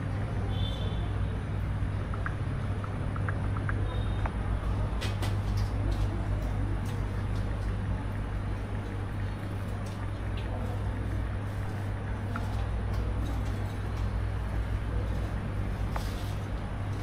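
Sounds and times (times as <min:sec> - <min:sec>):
low rumbling hum: 0:05.7 - 0:17.0.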